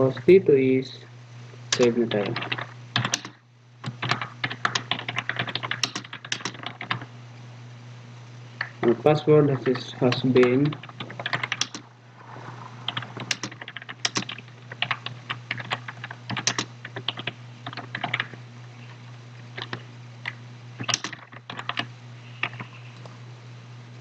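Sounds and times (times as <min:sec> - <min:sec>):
steady low hum: 0:00.0 - 0:24.0
computer keyboard typing: 0:01.8 - 0:07.1, 0:10.4 - 0:11.8, 0:12.9 - 0:18.4, 0:19.6 - 0:22.7.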